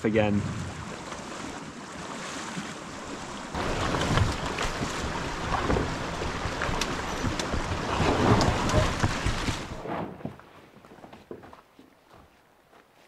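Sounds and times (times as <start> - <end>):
water splashing and sloshing: 0.2 - 10.9
canoe dragged over sticks: 3.2 - 10.6
hull and branches knocking: 3.6 - 10.4.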